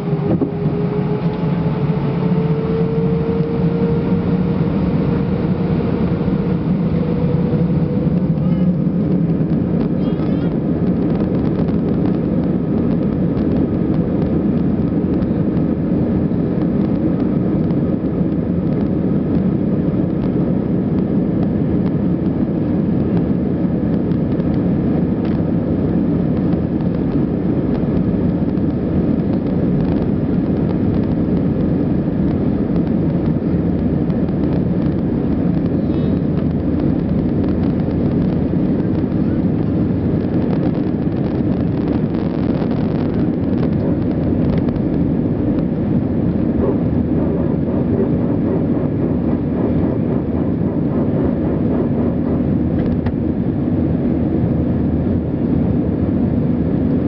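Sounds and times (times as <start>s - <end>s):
jet engines at takeoff power: 0.0s - 57.0s.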